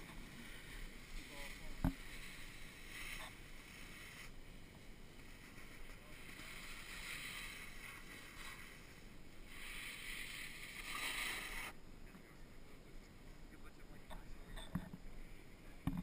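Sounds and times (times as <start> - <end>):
snowboard sliding over snow: 0.0 - 12.4.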